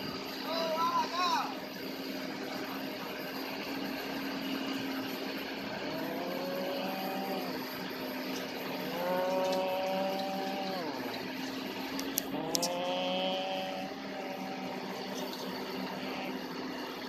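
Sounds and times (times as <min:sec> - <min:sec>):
harvester engine revving: 0:05.5 - 0:16.9.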